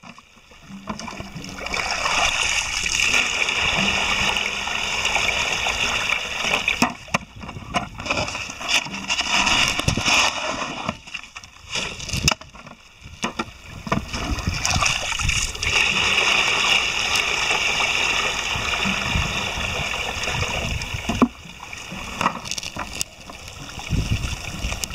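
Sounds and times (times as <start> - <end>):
water rushing over gravel: 0.0 - 24.9
knocks of stones and plastic: 6.6 - 14.2, 21.1 - 21.4, 22.0 - 23.6.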